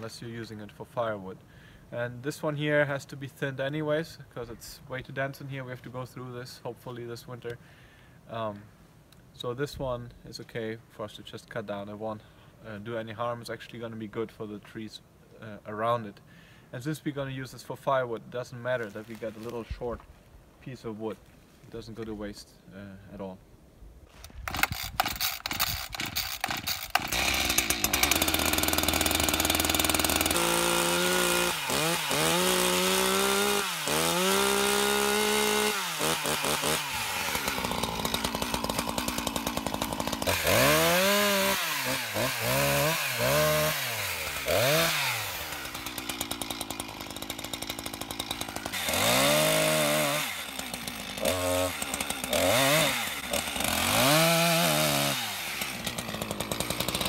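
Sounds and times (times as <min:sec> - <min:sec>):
chainsaw pull-start cranking: 0:24.1 - 0:57.0
chainsaw engine revving: 0:24.4 - 0:57.0.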